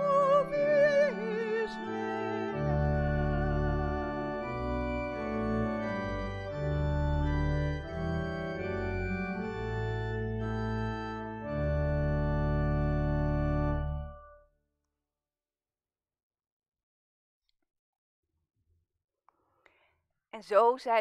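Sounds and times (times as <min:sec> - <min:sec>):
woman singing with vibrato: 0:00.0 - 0:02.5
organ playing sustained chords: 0:00.0 - 0:14.4.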